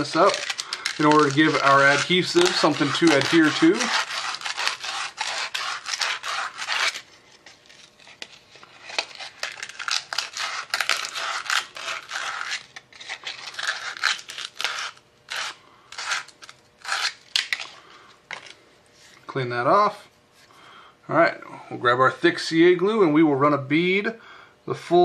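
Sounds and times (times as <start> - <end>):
sandpaper rubbing on metal tube: 0.0 - 7.1, 8.0 - 17.2.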